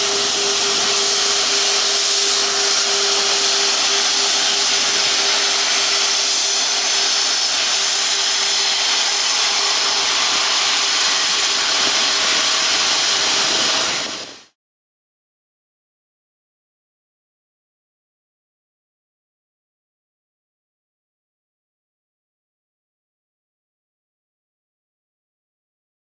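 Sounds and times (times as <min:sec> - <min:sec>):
jet engines hissing and whining: 0:00.0 - 0:14.6.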